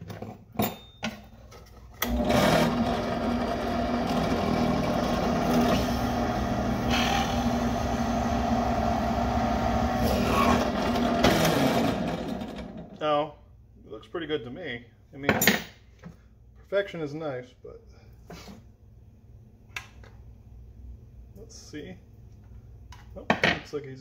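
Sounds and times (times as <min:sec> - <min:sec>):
drill press motor running: 0:02.0 - 0:13.0.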